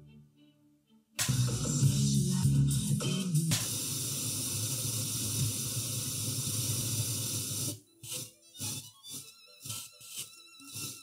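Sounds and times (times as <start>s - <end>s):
radio broadcast music: 1.2s - 11.0s
radio static hiss: 3.5s - 8.9s.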